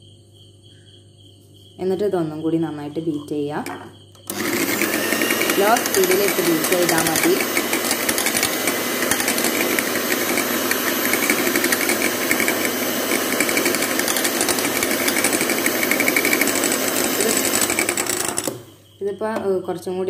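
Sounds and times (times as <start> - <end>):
electric hand mixer whipping: 3.6 - 18.8.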